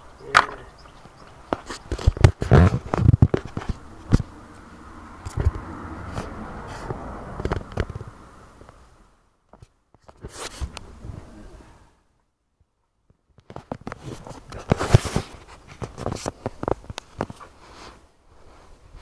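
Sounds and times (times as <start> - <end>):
phone rustling against clothing: 0.5 - 4.6, 9.5 - 10.9, 13.2 - 19.0.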